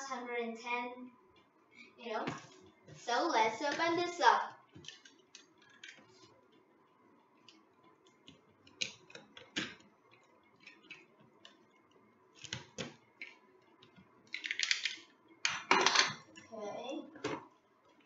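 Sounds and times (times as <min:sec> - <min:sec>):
packaging clicks: 0:14.3 - 0:15.0.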